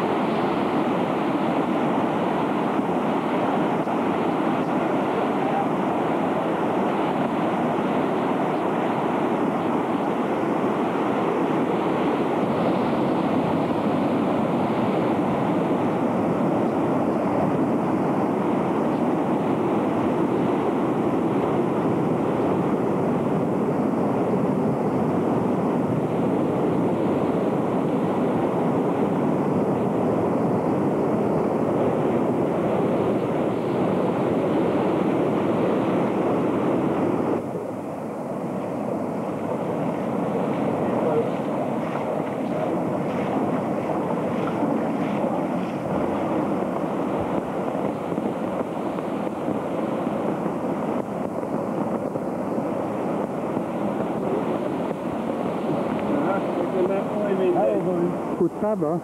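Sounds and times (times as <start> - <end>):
floodwater rushing: 31.5 - 59.0.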